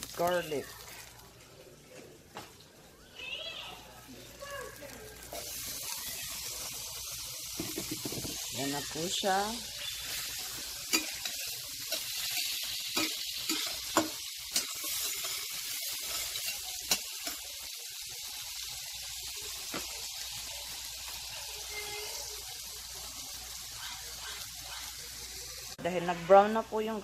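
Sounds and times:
garlic sizzling in butter: 0:00.0 - 0:01.4, 0:04.0 - 0:26.9.

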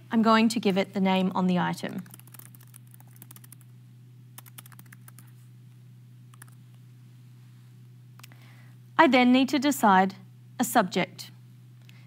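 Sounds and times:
steady low hum: 0:00.0 - 0:12.0
faint typing on keyboard: 0:01.8 - 0:03.7, 0:04.4 - 0:05.4, 0:06.3 - 0:06.6.

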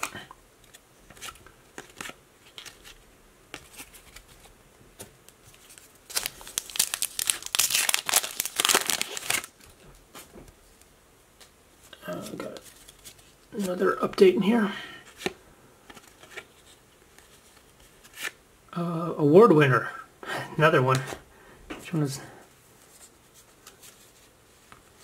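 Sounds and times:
foil wrapper tearing and crinkling: 0:06.1 - 0:09.7.

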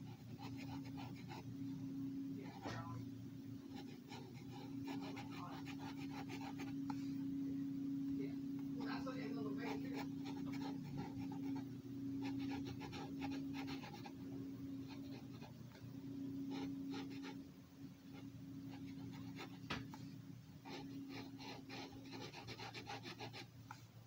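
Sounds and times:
marker scratching on paper: 0:00.0 - 0:01.4, 0:03.8 - 0:06.8, 0:09.6 - 0:11.6, 0:12.2 - 0:14.1, 0:20.7 - 0:23.5
steady low hum: 0:00.0 - 0:24.0.

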